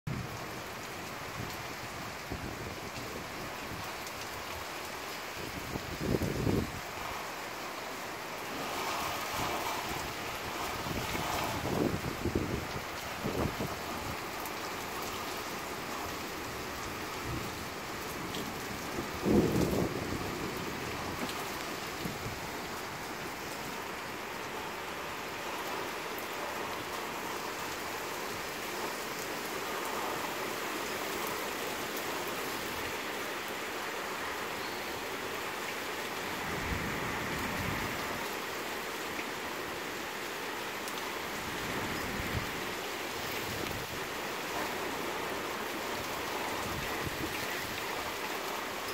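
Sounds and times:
steady rain hissing: 0.1s - 48.9s.

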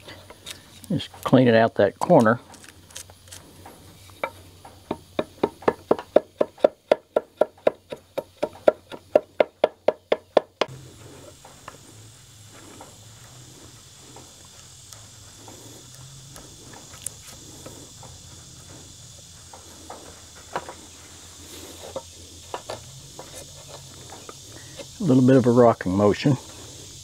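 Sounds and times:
chisel tapping on wood: 4.2s - 10.7s.

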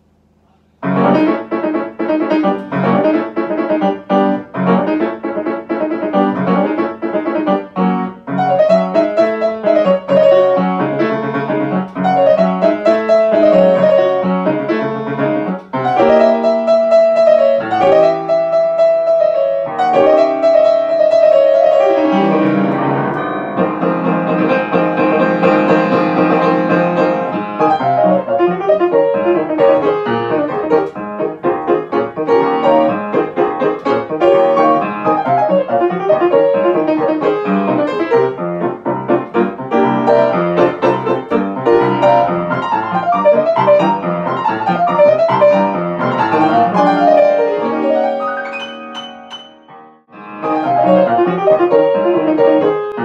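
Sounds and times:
grand piano novelty piece: 0.0s - 53.0s.

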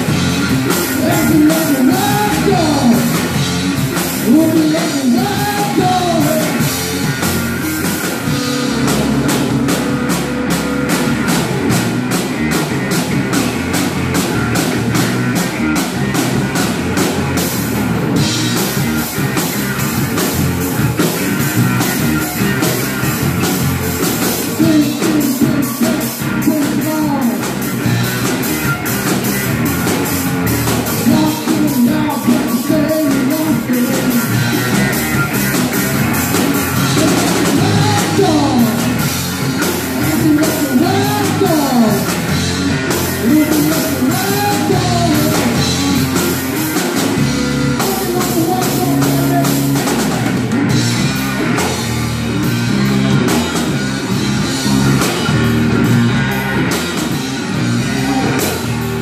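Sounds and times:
live blues-rock band: 0.0s - 59.0s
person singing: 0.9s - 3.2s, 4.2s - 6.7s, 24.6s - 27.6s, 30.9s - 34.7s, 36.9s - 39.1s, 40.0s - 42.2s, 43.2s - 50.2s, 57.8s - 58.8s.

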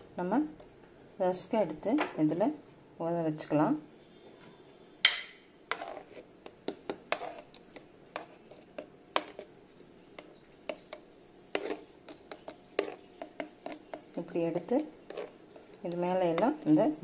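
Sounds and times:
plastic spoon tapping a tray: 6.5s - 8.3s.

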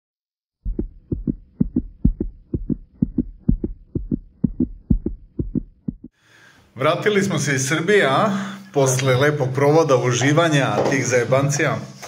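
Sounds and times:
heartbeat thumps: 0.6s - 6.2s.

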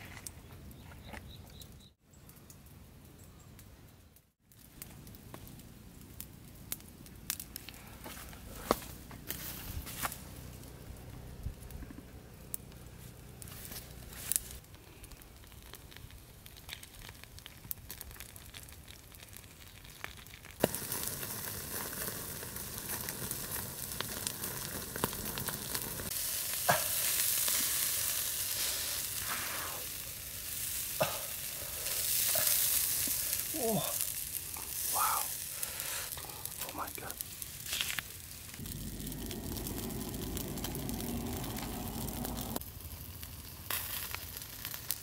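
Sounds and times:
embers crackling: 0.1s - 45.0s
fish sizzling on a grill: 12.4s - 45.0s.

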